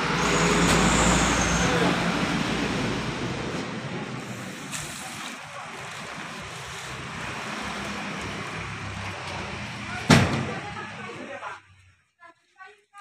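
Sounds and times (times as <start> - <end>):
vehicle passing: 5.7 - 11.4.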